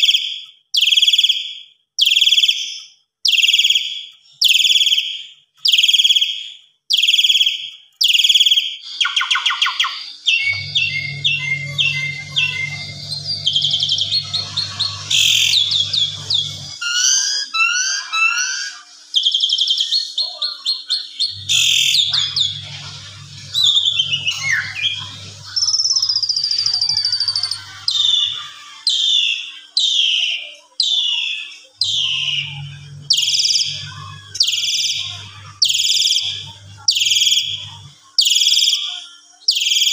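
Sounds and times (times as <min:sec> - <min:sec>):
bird chattering trills and whistles: 0:00.0 - 0:38.9, 0:39.5 - 0:39.9
low steady hum: 0:10.3 - 0:16.9, 0:21.3 - 0:28.4.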